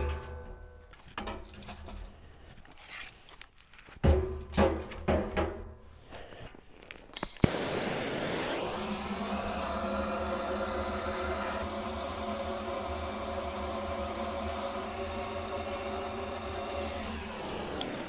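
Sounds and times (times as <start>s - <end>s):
gas torch click: 7.1s - 8.2s, 17.4s - 18.0s
gas torch hissing: 7.2s - 18.0s.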